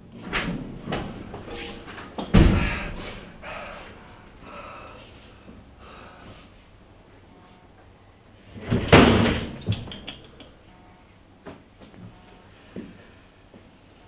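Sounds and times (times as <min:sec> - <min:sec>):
heavy thud: 0:02.3 - 0:03.0.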